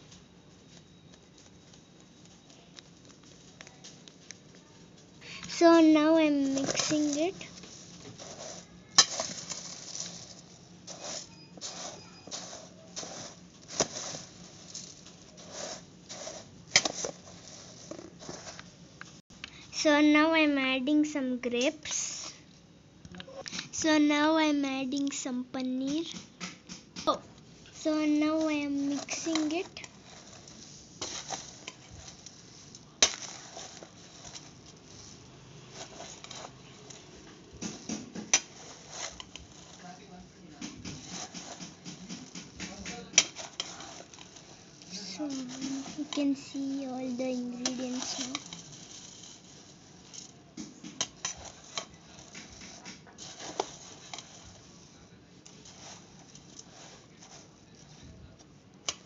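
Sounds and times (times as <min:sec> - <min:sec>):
puffed rice rustling: 0:00.0 - 0:19.2, 0:26.8 - 0:59.0
metal spoon scraping steel bowl: 0:38.2 - 0:39.8, 0:40.9 - 0:46.8, 0:47.6 - 0:50.3.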